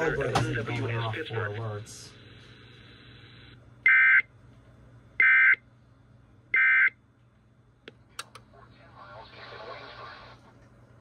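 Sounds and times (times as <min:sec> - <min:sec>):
faint radio hiss: 0:08.3 - 0:11.0.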